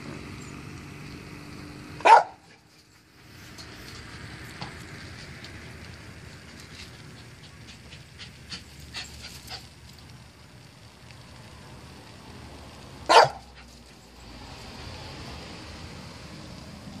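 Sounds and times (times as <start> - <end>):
dog barking: 2.0 - 2.6, 13.1 - 13.5.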